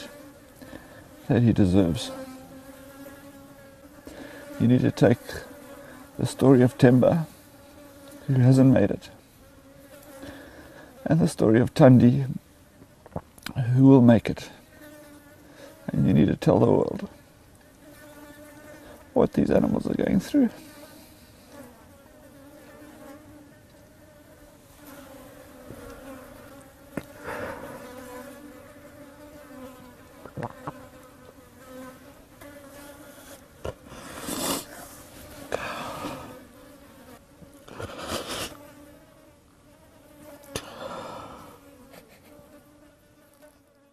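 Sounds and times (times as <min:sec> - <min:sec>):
flies buzzing: 0:00.0 - 0:43.9
man sobbing breaths: 0:35.5 - 0:36.4, 0:40.6 - 0:41.6.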